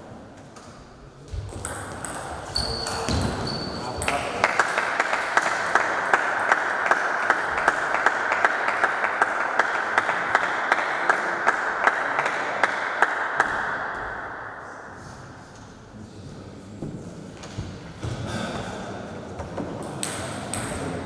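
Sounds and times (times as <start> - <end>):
rhythmic clapping: 4.0 - 14.1
spectators applauding: 4.1 - 13.6.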